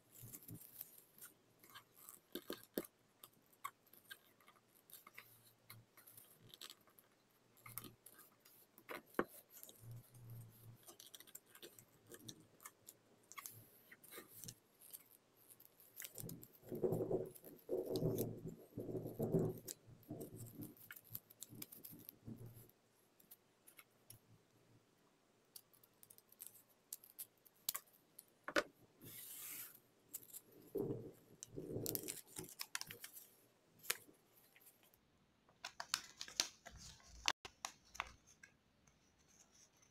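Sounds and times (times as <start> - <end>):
paper folding and creasing: 0.0 - 18.8, 29.0 - 35.0, 35.6 - 39.9
paper rustling and crackling: 29.1 - 34.9, 35.6 - 38.4.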